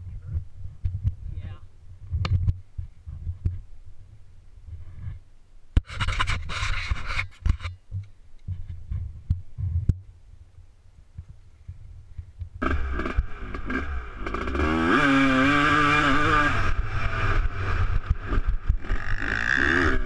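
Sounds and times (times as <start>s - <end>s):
low rumble: 16.5s - 20.0s.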